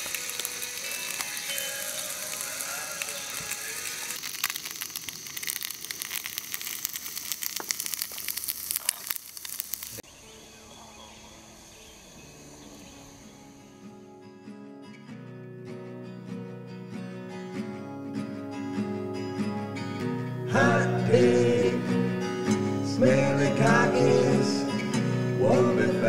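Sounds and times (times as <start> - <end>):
food sizzling in a frying pan: 0.0 - 10.1.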